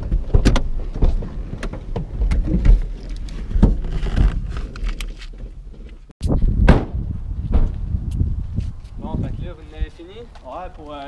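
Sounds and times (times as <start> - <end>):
people climbing out of car: 0.0 - 6.1.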